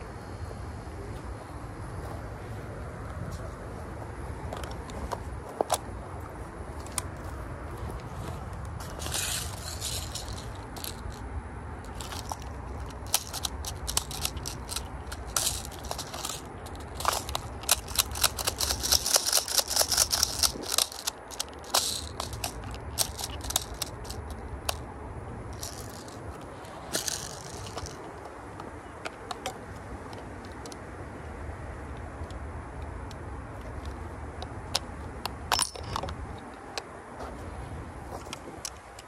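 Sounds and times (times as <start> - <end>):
rustling: 4.5 - 11.2, 11.8 - 24.8, 25.5 - 28.3
rifle magazine clicks and rattles: 8.9 - 11.2, 11.8 - 24.9, 25.6 - 30.8.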